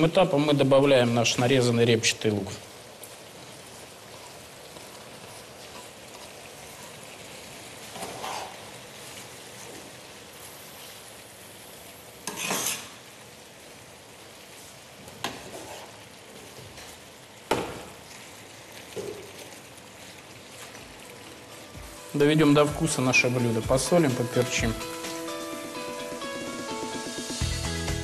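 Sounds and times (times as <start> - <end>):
meat and onion sizzling in a pan: 2.5 - 28.0
metal spatula scraping pan: 12.3 - 12.9.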